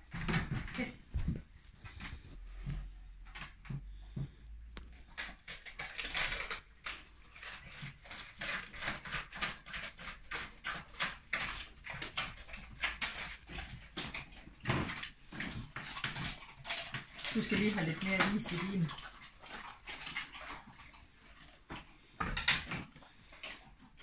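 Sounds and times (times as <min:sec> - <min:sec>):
dogs licking wet lapping: 0:05.0 - 0:24.0.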